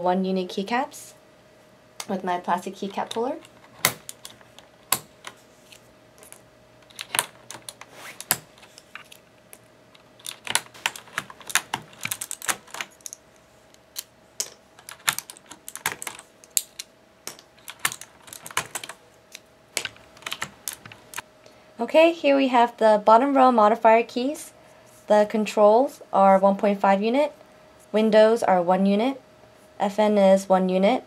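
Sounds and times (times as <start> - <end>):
keycaps snapping off keyboard: 2.8 - 5.4, 6.2 - 9.2, 10.0 - 13.2, 13.8 - 21.2.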